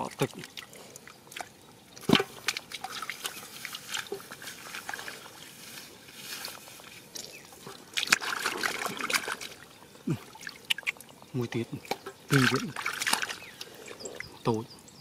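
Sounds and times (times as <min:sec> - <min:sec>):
hands splashing in muddy water: 0:01.3 - 0:05.6, 0:07.2 - 0:11.1, 0:11.8 - 0:13.7.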